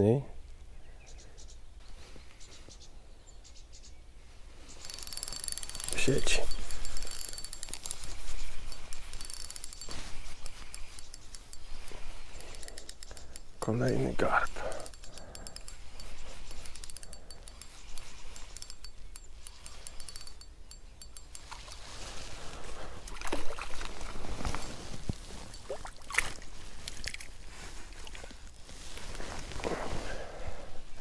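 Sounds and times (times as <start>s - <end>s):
fishing reel ticking: 4.7s - 27.1s.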